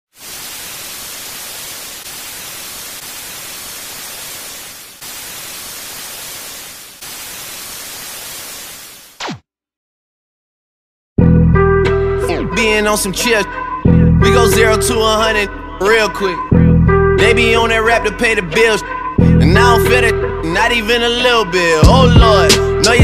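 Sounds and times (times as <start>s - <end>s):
television static hiss: 0.1s - 9.2s.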